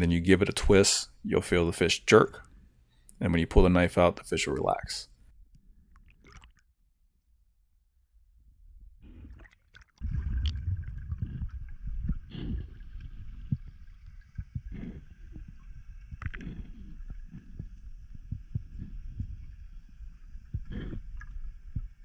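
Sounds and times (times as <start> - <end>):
underwater water rumble: 8.1 - 22.0.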